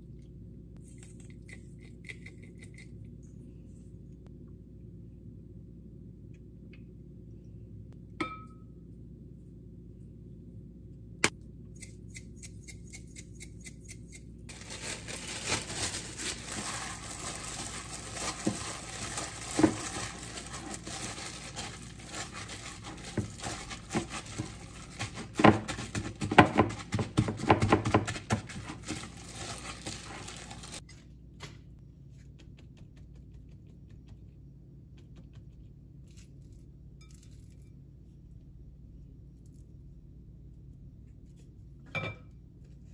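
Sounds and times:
gloved hand kneading meat: 14.5s - 30.8s.

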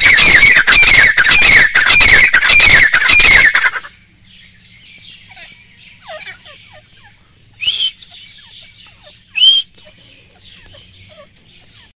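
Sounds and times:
francolin shrill calls: 0.0s - 11.9s
faint bird chirping: 0.0s - 12.0s.

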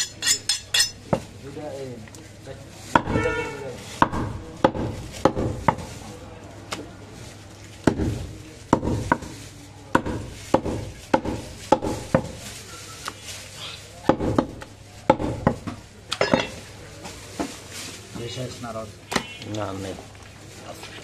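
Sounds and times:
cleaver chopping meat on wood: 3.0s - 3.2s, 4.0s - 5.9s, 7.8s - 9.3s, 9.9s - 12.4s, 14.1s - 15.8s.

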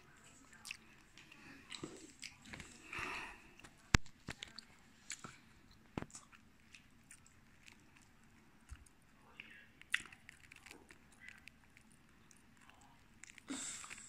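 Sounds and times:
toddler chewing: 0.0s - 14.0s
mouth clicks and smacks: 3.6s - 14.0s.

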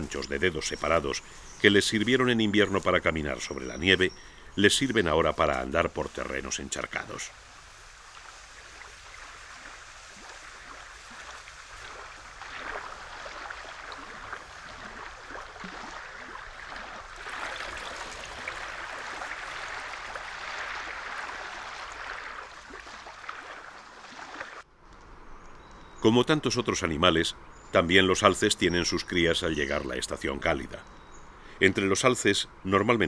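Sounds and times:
water splashing and streaming: 0.0s - 24.7s.

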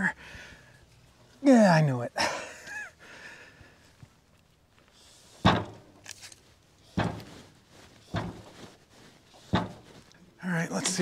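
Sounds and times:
heavy wood thumps on steel bed: 5.4s - 6.0s, 6.9s - 7.4s, 8.1s - 8.6s, 9.4s - 10.0s.

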